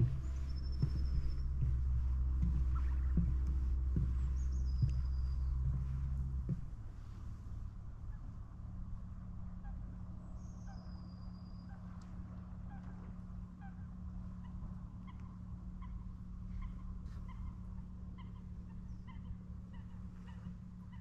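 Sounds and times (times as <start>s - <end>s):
waterbirds calling: 0.0s - 8.3s, 12.7s - 21.0s
low rumble: 0.0s - 21.0s.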